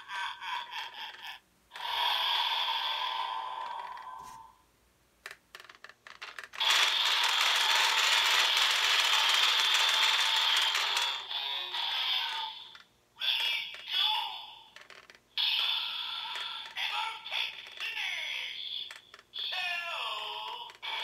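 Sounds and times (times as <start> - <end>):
toy crank ratcheting clicks: 5.3 - 12.8
toy electronic sound effects: 6.6 - 14.3, 15.4 - 21.0.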